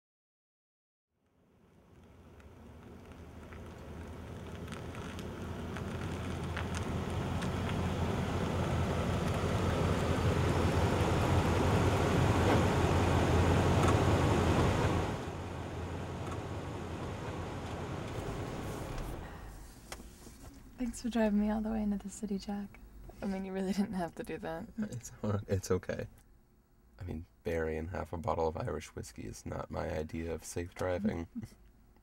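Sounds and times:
car road and engine noise: 0:01.2 - 0:21.9.

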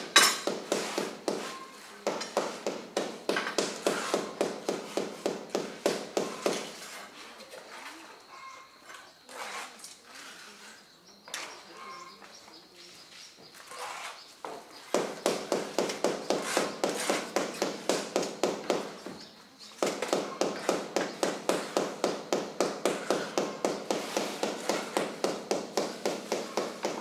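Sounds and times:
hammer tapping on hard material: 0:00.2 - 0:06.7, 0:14.9 - 0:18.9, 0:19.8 - 0:27.0.

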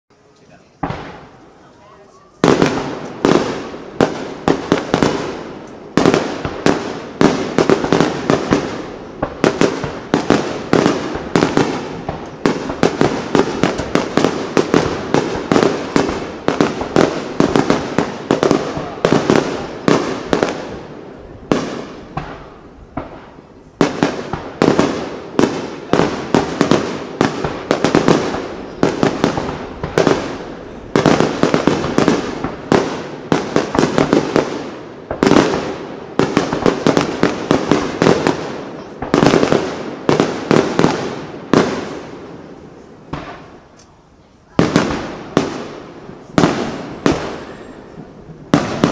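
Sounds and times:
firework shells bursting: 0:02.4 - 0:20.8.

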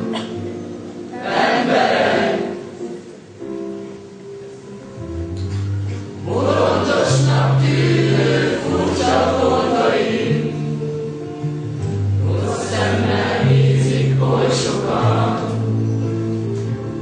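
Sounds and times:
instrumental accompaniment: 0:00.0 - 0:17.0
group singing together: 0:01.1 - 0:02.8, 0:06.2 - 0:10.8, 0:12.0 - 0:15.8.

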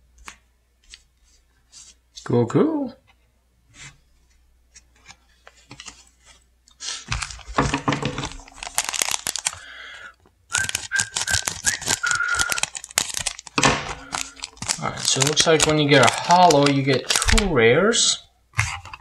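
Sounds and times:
foil pack crinkling: 0:06.9 - 0:18.1.

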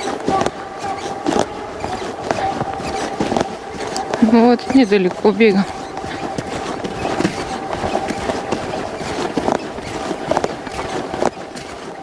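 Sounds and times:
footsteps crunching in snow: 0:00.0 - 0:12.0
rustling near microphone: 0:00.0 - 0:12.0.

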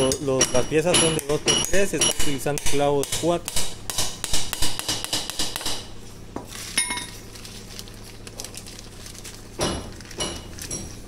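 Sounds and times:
hammer striking nails in wood: 0:00.4 - 0:05.9.

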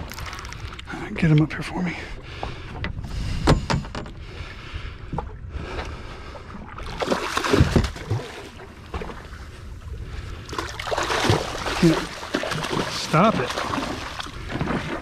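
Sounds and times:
fish thrashing and splashing: 0:00.0 - 0:00.9, 0:06.8 - 0:09.3, 0:10.5 - 0:15.0
wind and water noise: 0:00.0 - 0:15.0.

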